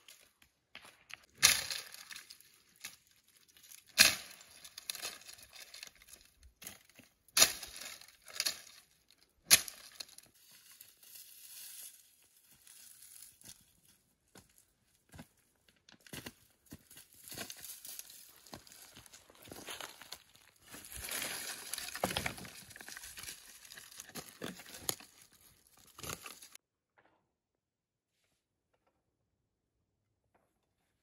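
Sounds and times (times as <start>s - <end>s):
dry brush rustling and crackling: 1.3s - 6.3s, 9.6s - 14.0s, 16.1s - 26.6s
dry branches snapping: 1.4s - 3.0s, 3.6s - 6.2s, 20.8s - 26.6s.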